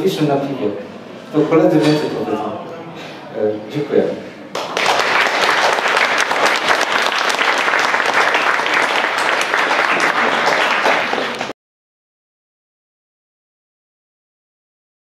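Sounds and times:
audience applauding: 4.5 - 11.6.

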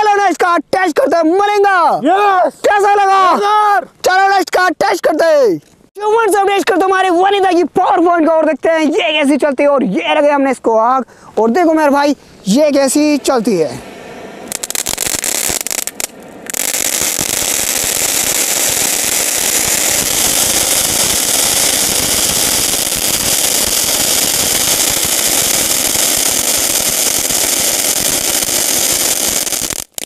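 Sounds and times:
firework crackling hiss: 12.8 - 30.0.

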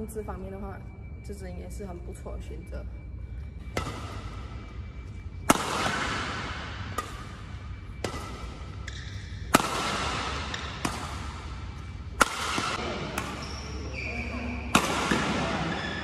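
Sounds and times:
racquet hitting shuttlecock: 3.7 - 4.5, 5.4 - 13.8, 14.7 - 16.0.

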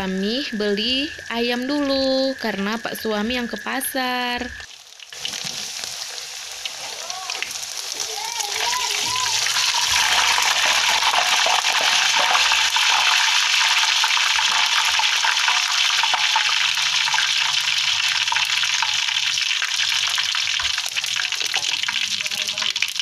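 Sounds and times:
chicken deep-frying in hot oil: 4.6 - 23.0.

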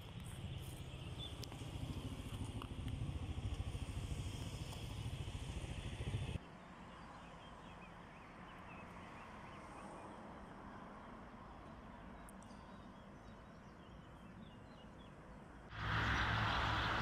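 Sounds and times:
wind buffeting microphone: 0.2 - 6.4.

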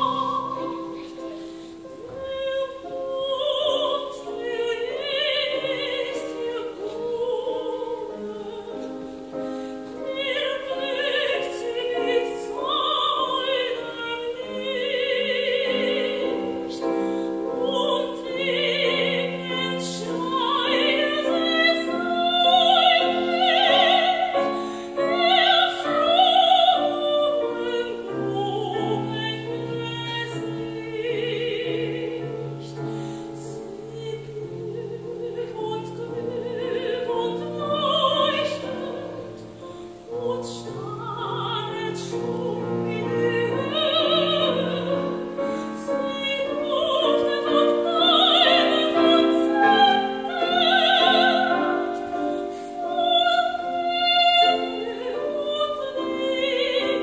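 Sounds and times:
grand piano: 0.0 - 57.0
woman singing operatically: 0.0 - 57.0.

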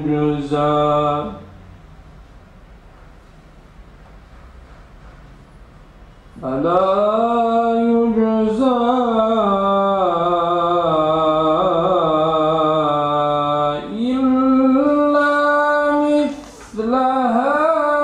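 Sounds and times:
man chanting melodically: 0.0 - 1.5, 6.4 - 18.0.

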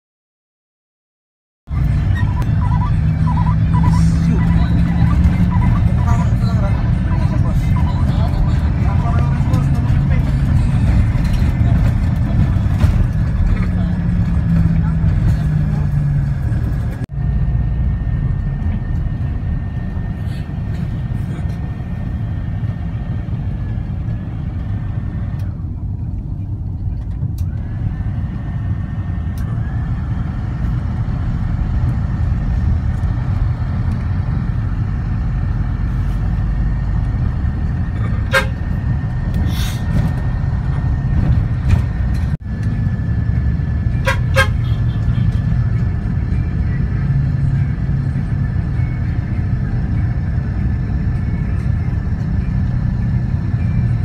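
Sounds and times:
vehicle rumble on board: 1.7 - 54.0
vehicle horn toots: 38.1 - 38.8, 43.9 - 45.4.

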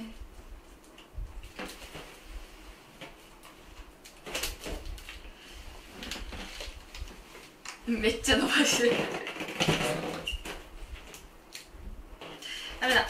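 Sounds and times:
rubbery balloon squeaks: 8.6 - 10.7.

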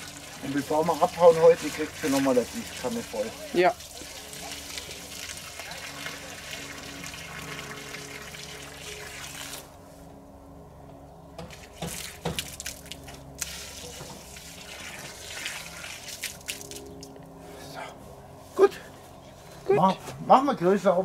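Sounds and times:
water pouring onto soil: 0.0 - 9.7, 11.9 - 17.2.

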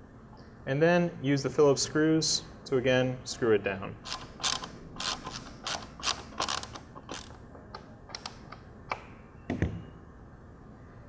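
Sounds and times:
screwdriver creaks and clicks: 4.1 - 7.4.

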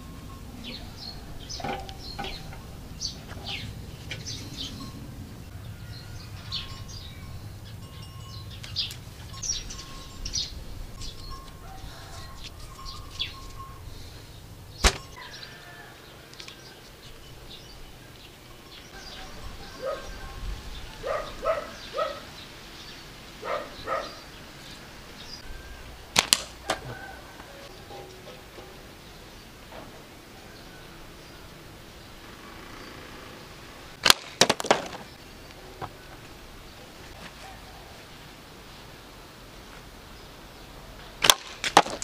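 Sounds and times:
birds chirping: 0.0 - 42.0
slingshot snapping: 14.8 - 15.2, 26.1 - 26.8, 34.0 - 35.0, 41.2 - 42.0.

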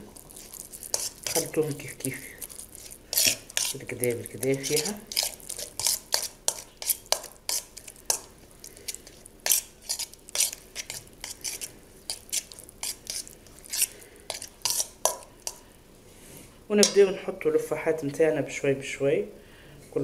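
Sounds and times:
spoon scraping metal bowl: 0.0 - 15.6.

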